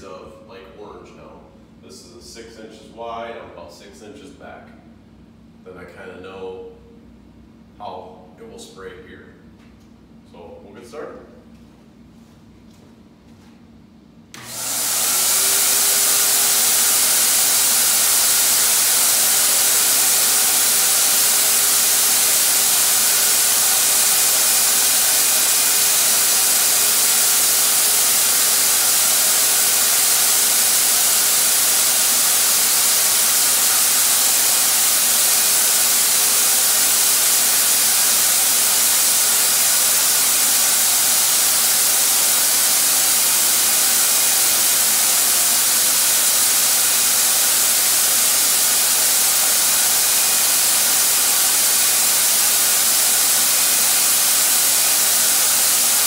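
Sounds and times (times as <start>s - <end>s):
turbine sprayer hissing: 14.4s - 56.0s.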